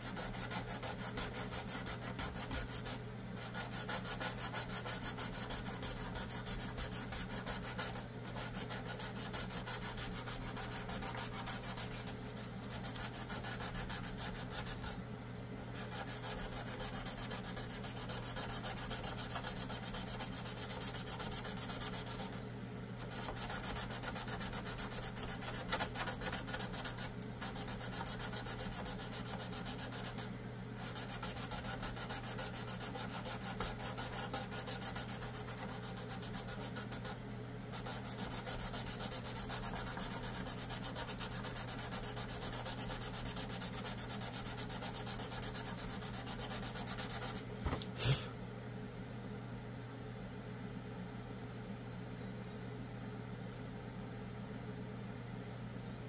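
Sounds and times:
sanding sponge rubbing wood: 0:00.0 - 0:15.0, 0:15.8 - 0:22.4, 0:23.0 - 0:47.4.

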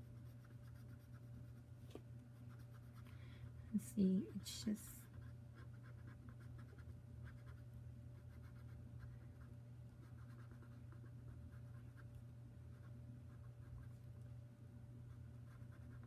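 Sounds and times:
steady low hum: 0:00.0 - 0:16.0
pen scratching on paper: 0:00.1 - 0:01.6, 0:02.4 - 0:03.0, 0:05.0 - 0:07.6, 0:08.2 - 0:09.2, 0:10.0 - 0:12.1, 0:15.3 - 0:16.0.

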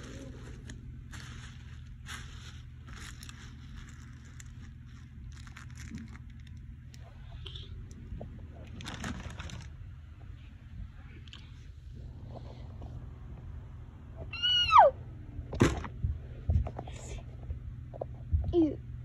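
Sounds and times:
scratchy crackles: 0:00.0 - 0:06.6
low steady hum: 0:00.0 - 0:19.0.

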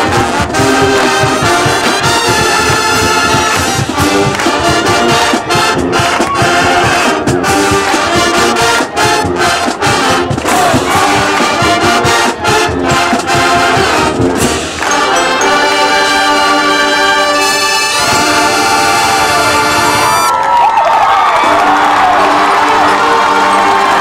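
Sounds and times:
marching drum beat: 0:00.0 - 0:14.9
brass band chords: 0:00.0 - 0:20.3, 0:21.3 - 0:24.0.

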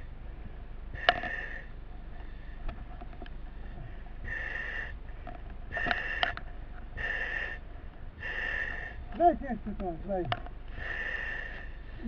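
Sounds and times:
breathing mask valve hissing: 0:01.0 - 0:01.7, 0:04.2 - 0:05.0, 0:05.7 - 0:06.4, 0:07.0 - 0:07.6, 0:08.2 - 0:09.0, 0:10.7 - 0:11.8.

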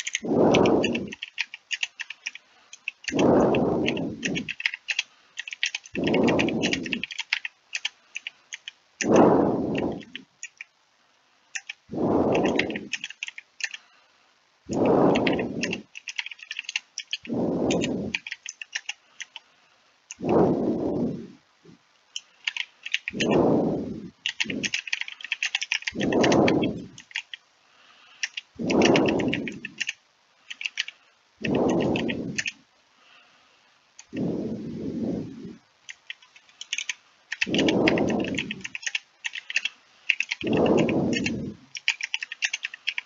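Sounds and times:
keyboard typing: 0:00.0 - 0:10.7, 0:11.5 - 0:13.8, 0:14.7 - 0:19.4, 0:22.2 - 0:23.6, 0:24.2 - 0:27.4, 0:28.2 - 0:32.6, 0:35.9 - 0:43.0
low whooshing puff: 0:00.2 - 0:01.1, 0:03.1 - 0:04.4, 0:09.0 - 0:10.1, 0:11.9 - 0:12.8, 0:14.7 - 0:15.7, 0:17.3 - 0:18.2, 0:20.2 - 0:21.4, 0:23.2 - 0:24.6, 0:28.6 - 0:29.6, 0:34.2 - 0:35.6, 0:40.5 - 0:41.6.

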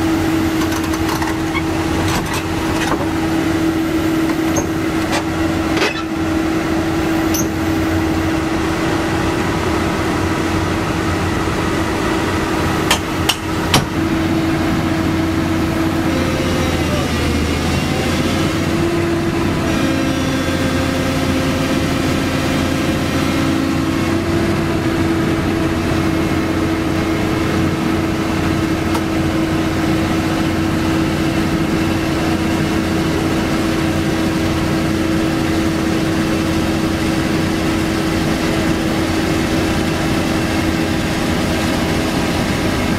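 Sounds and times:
excavator diesel engine running: 0:00.0 - 0:42.9
metallic clanks of tracks: 0:00.5 - 0:03.2, 0:04.2 - 0:06.2, 0:07.2 - 0:07.8, 0:12.8 - 0:14.0.

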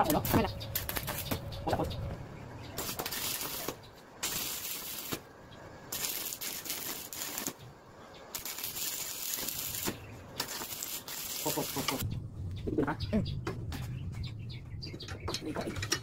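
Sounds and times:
arc welding crackling and hissing: 0:00.0 - 0:01.9, 0:02.6 - 0:12.0.

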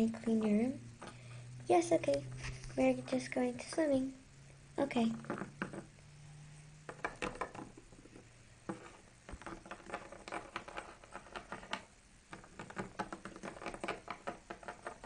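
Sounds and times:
plastic toys tapping on wood: 0:06.9 - 0:15.0.

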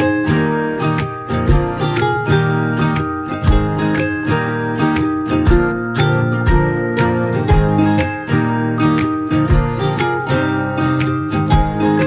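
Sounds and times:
strummed acoustic guitar: 0:00.0 - 0:12.0.

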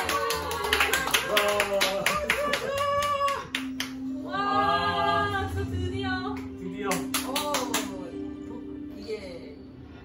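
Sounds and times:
excited voices: 0:00.0 - 0:03.6
people clapping in rhythm: 0:00.0 - 0:04.2, 0:06.4 - 0:08.1.

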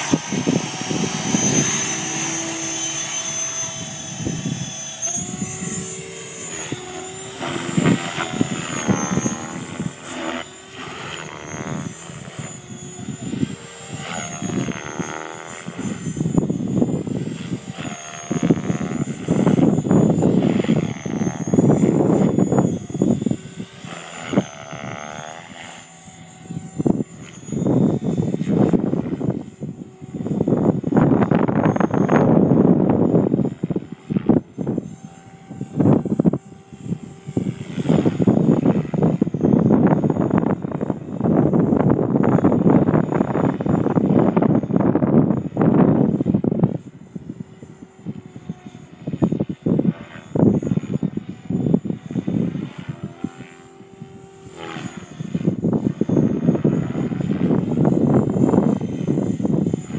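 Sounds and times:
rotor rushing: 0:00.0 - 0:46.9
model helicopter whine: 0:00.0 - 0:59.9.

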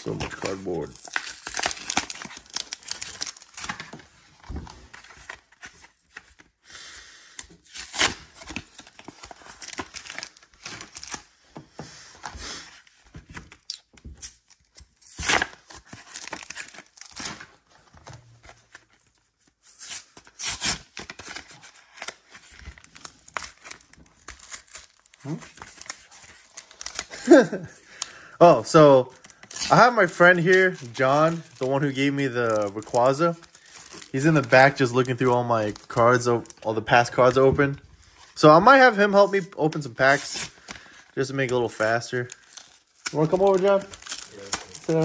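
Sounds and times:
cardboard tearing: 0:00.0 - 0:04.0, 0:07.7 - 0:11.2, 0:13.4 - 0:17.6, 0:19.6 - 0:27.6, 0:42.2 - 0:45.0
packaging crinkling: 0:00.0 - 0:04.0, 0:07.6 - 0:11.2, 0:13.4 - 0:17.5, 0:18.4 - 0:37.4, 0:39.1 - 0:45.0.

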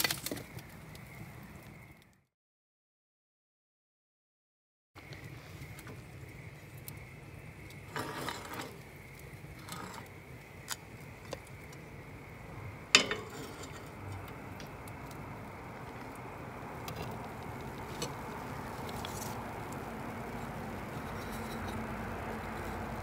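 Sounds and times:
campfire burning: 0:00.0 - 0:02.2, 0:05.0 - 0:23.0
metal clanking on grill grate: 0:07.9 - 0:08.8, 0:12.9 - 0:15.2.

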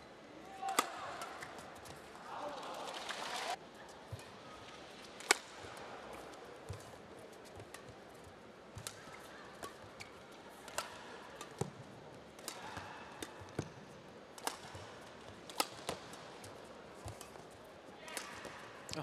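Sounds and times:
low hall background: 0:00.0 - 0:19.0
rackets hitting shuttlecock: 0:00.6 - 0:02.1, 0:05.2 - 0:07.0, 0:07.6 - 0:19.0.

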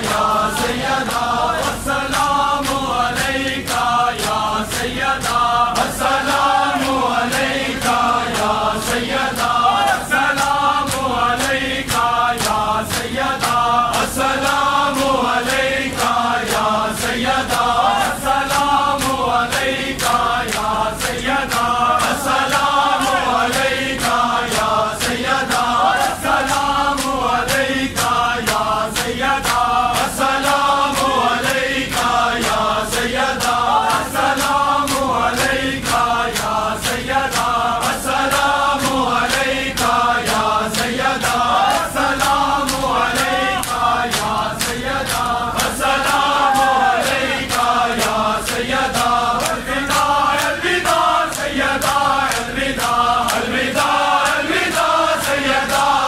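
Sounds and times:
men chanting in unison: 0:00.0 - 0:56.0
hands beating on chests: 0:38.8 - 0:54.4.

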